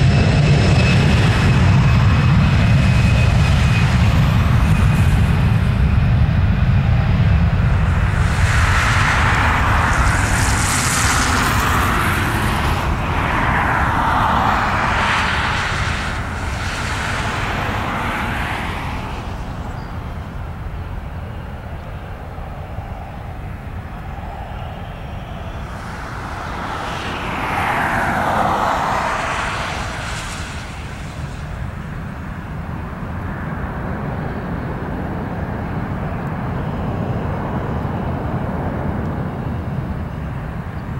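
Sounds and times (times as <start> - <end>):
jet engines roaring at takeoff: 0.0 - 40.9.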